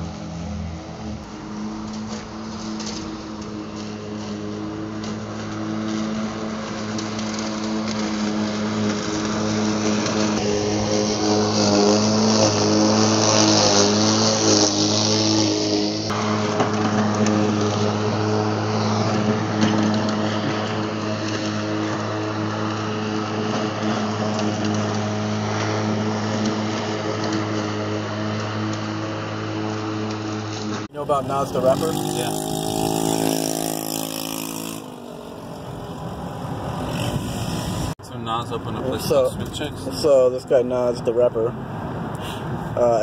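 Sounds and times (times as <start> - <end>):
electric lawn mower running: 0.0 - 37.9
hiss of cut grass: 0.2 - 30.8, 36.9 - 38.0.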